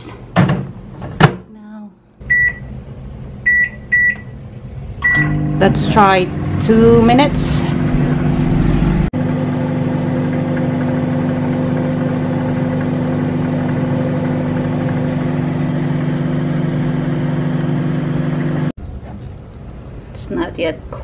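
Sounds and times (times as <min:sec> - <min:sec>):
microwave oven humming: 0:02.2 - 0:18.7.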